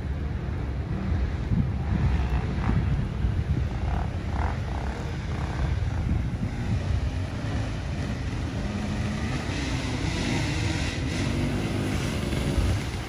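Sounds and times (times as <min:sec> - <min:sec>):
dirt bike engine revving: 0:03.7 - 0:13.0.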